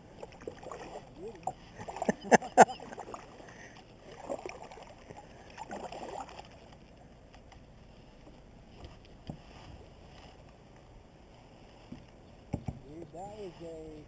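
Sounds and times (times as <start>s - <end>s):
paddle strokes through water: 0.0s - 14.0s.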